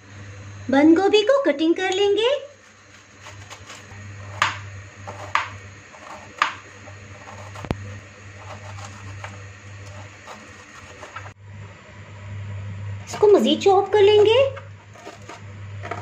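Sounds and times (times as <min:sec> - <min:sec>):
steady low hum: 0:00.0 - 0:16.0
knife cutting cabbage: 0:02.6 - 0:11.3, 0:14.2 - 0:16.0.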